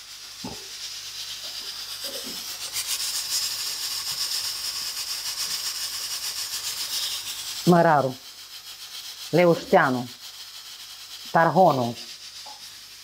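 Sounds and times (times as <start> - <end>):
bread sizzling in oil: 0.0 - 13.0.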